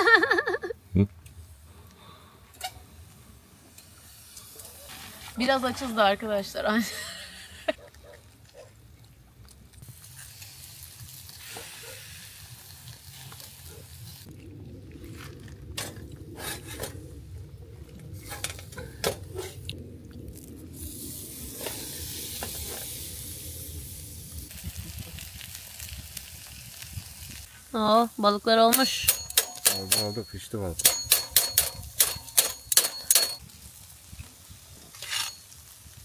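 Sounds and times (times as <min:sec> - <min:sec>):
fish sizzling on a grill: 0:02.6 - 0:07.7, 0:09.8 - 0:14.3, 0:20.3 - 0:29.1, 0:33.4 - 0:36.0
sharp crackles and clicks: 0:07.9 - 0:36.0.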